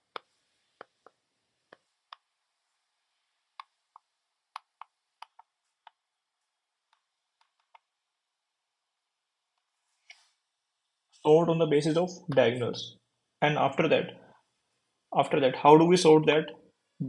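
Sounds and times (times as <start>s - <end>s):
stylus tapping on tablet screen: 0.1s - 2.4s, 3.6s - 6.1s.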